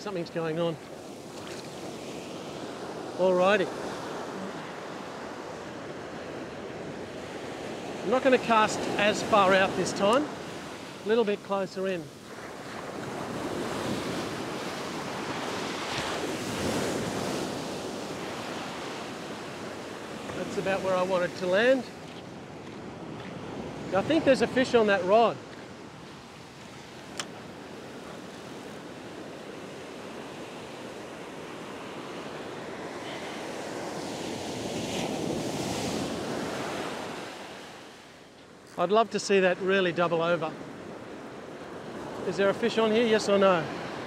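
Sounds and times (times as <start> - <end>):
surf breaking on sand: 0.0 - 38.0.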